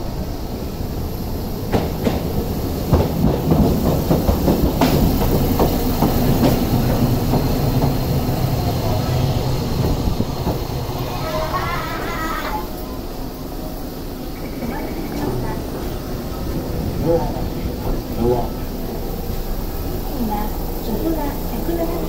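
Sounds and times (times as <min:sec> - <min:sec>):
tram low hum: 0:00.0 - 0:22.0
tram wheels knocking over rail joints: 0:01.7 - 0:11.4.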